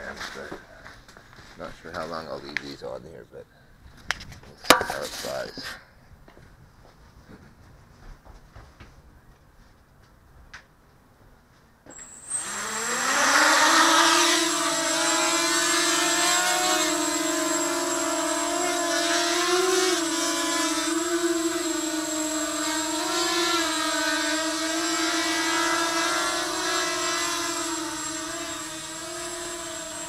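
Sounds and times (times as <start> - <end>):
quadcopter motors buzzing: 11.9 - 30.0.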